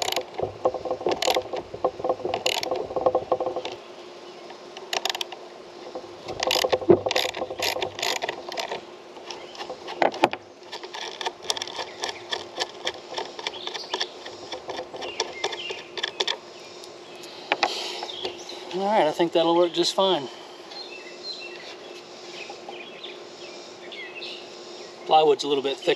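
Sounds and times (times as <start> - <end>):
metal knocking on wood: 0.0 - 3.8, 5.9 - 8.8, 11.2 - 16.4
small ticks: 0.0 - 3.8, 4.5 - 10.1, 10.7 - 18.4.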